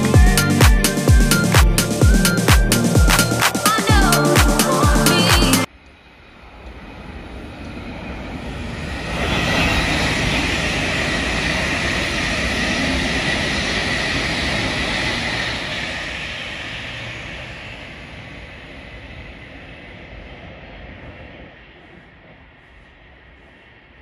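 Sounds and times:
train wheels rushing on rail: 0:05.6 - 0:24.0.

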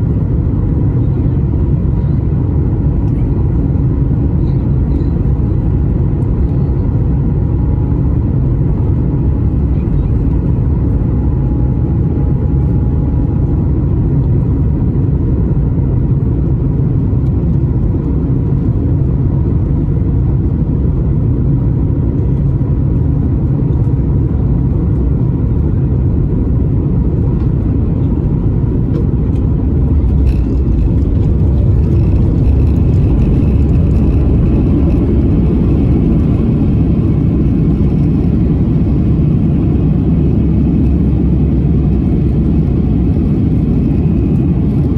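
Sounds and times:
aircraft engines rumbling: 0:00.0 - 0:44.9.

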